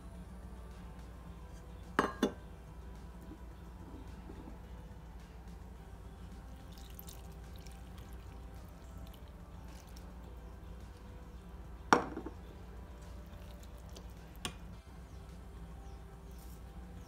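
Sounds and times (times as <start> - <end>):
low steady hum: 0.0 - 17.0
milk pouring onto potatoes: 6.5 - 11.1, 13.1 - 14.4.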